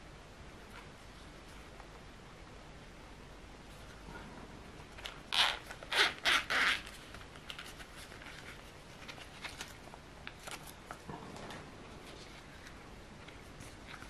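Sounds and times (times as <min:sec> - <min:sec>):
zipper rasping open: 0:05.3 - 0:06.9.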